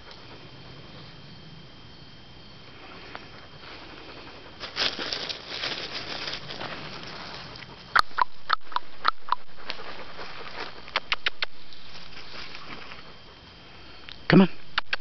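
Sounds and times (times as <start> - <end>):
footsteps crunching dry leaves: 4.6 - 7.6, 9.5 - 11.0.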